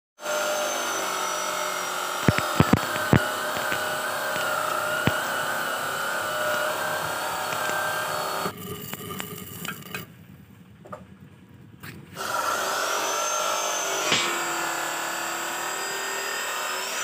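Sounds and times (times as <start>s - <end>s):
arc welding crackling hiss: 2.1s - 9.6s.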